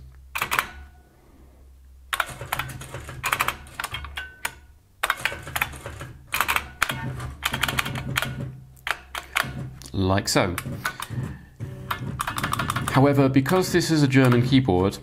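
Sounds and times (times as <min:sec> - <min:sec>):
typewriter keys clacking: 0:02.2 - 0:09.7, 0:11.9 - 0:15.0.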